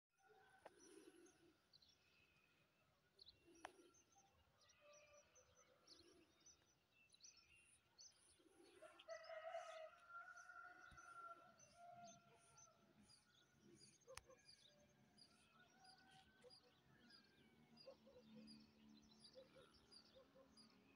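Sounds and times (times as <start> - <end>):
rooster crowing: 8.8 - 12.0.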